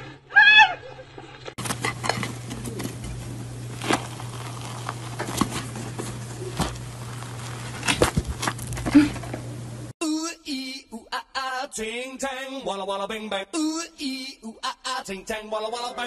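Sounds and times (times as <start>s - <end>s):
steady low hum: 1.2s - 9.9s
cake crust crackling: 1.6s - 8.9s.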